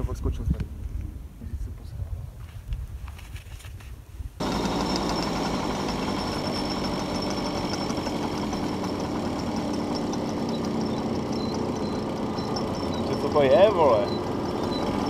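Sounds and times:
moped engine running: 0:04.4 - 0:15.0.

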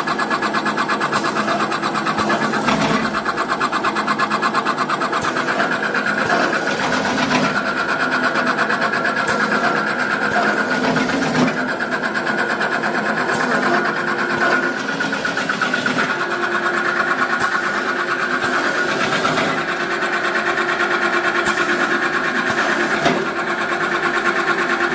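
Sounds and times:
peanut slicing machine chattering: 0:00.0 - 0:24.8.

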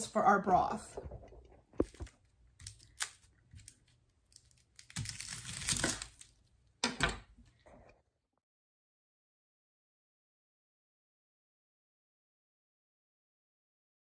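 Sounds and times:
onion skin crackling and tearing: 0:01.8 - 0:06.6.

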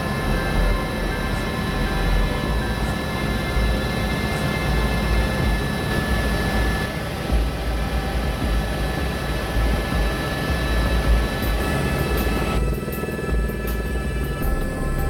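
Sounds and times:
helicopter cabin rumble: 0:00.0 - 0:15.0
high whining tones: 0:00.0 - 0:15.0.

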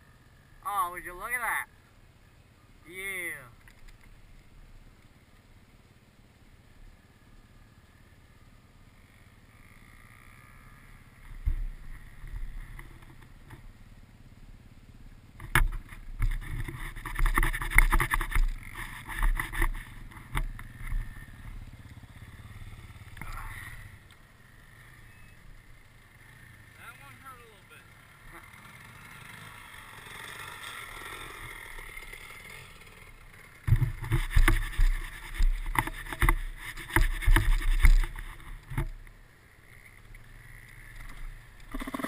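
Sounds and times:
dirt bike engine revving: 0:07.0 - 0:14.1, 0:15.6 - 0:42.0.

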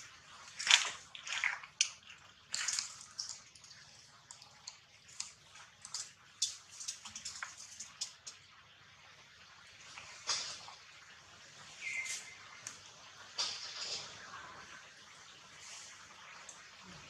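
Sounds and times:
leaves and twigs crackling: 0:00.0 - 0:04.0.

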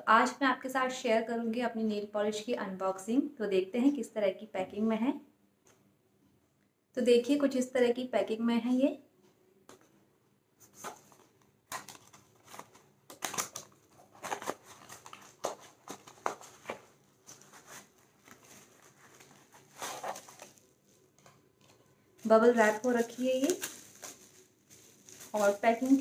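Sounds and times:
bubble wrap crinkling: 0:10.6 - 0:26.0
cardboard box pulled open: 0:17.3 - 0:20.6.

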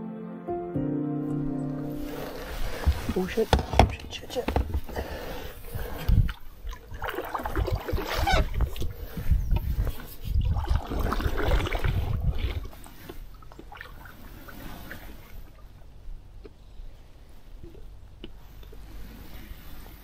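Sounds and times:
canoe paddle pulling through water: 0:01.9 - 0:16.0
knock on canoe: 0:02.8 - 0:05.0
water splashing and dripping: 0:06.0 - 0:09.0, 0:10.4 - 0:15.8.

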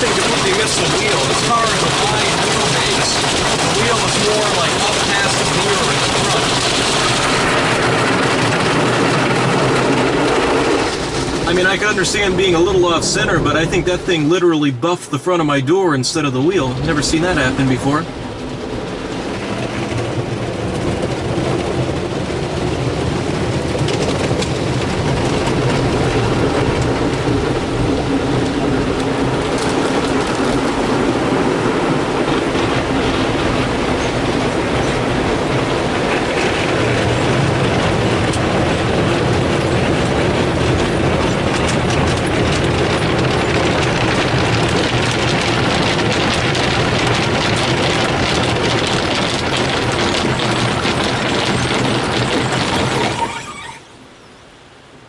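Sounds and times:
water spraying on glass: 0:00.0 - 0:13.8
machine hum: 0:00.0 - 0:55.0.

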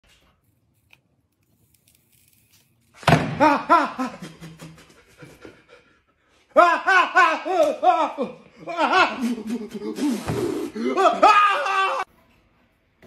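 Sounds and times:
man crying out in pain: 0:06.6 - 0:12.0.

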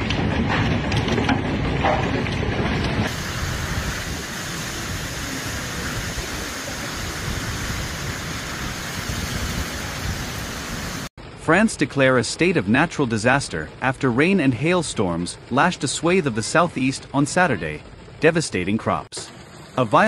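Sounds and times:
wind in trees: 0:02.5 - 0:11.4
heavy rain hissing: 0:03.0 - 0:20.0.

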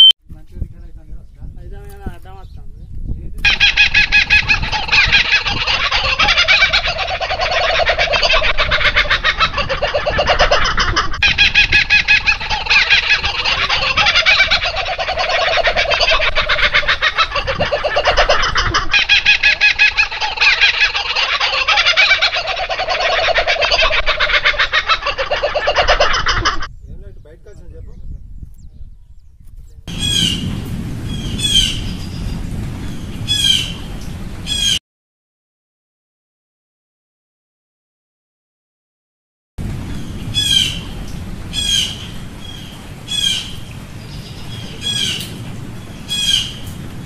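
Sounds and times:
young birds cheeping: 0:03.4 - 0:34.8, 0:39.6 - 0:47.0.

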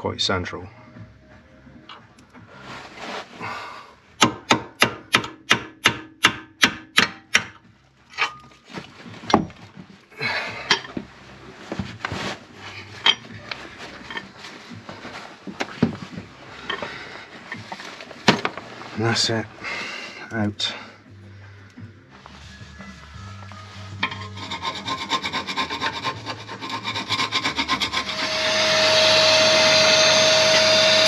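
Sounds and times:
metal scraping and rubbing: 0:10.6 - 0:19.4, 0:22.2 - 0:31.0.

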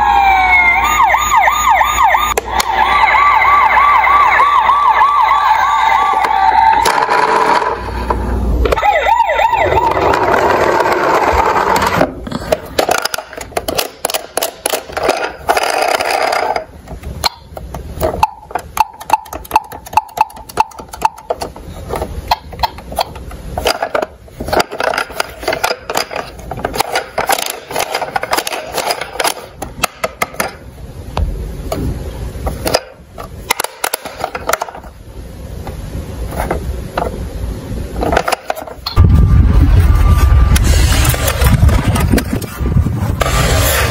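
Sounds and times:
toy siren wailing: 0:00.0 - 0:07.0, 0:08.7 - 0:10.7
plastic toy clicks and rattles: 0:09.9 - 0:30.6, 0:32.6 - 0:34.8
short electronic sounds: 0:38.9 - 0:41.6.

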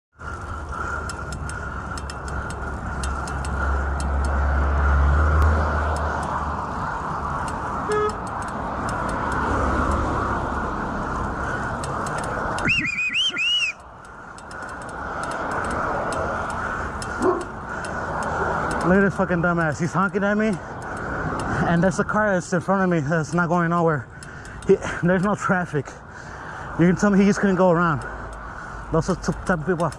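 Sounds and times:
bicycle road noise: 0:00.1 - 0:29.9
high wavering squeal: 0:12.6 - 0:13.8.

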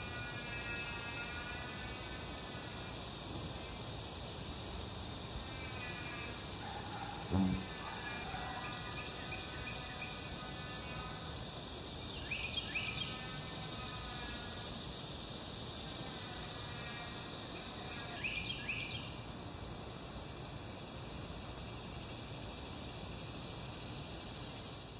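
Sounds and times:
insects chorus: 0:00.0 - 0:24.9
faint pitched hum: 0:07.2 - 0:08.3.

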